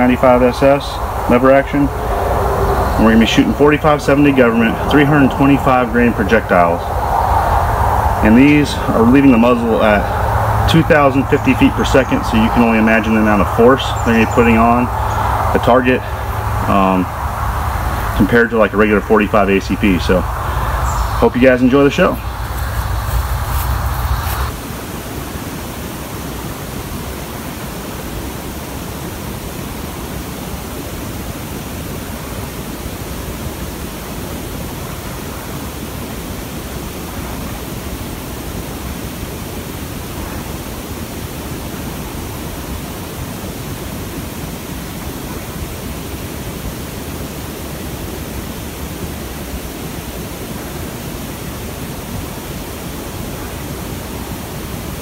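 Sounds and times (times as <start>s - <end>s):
wind noise on microphone: 0.0s - 25.9s.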